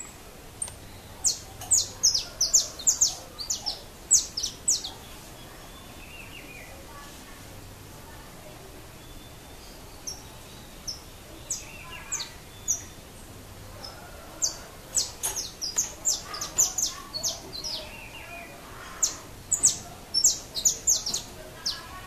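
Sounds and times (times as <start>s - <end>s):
finch chirping: 0.6s - 6.7s, 13.8s - 22.0s.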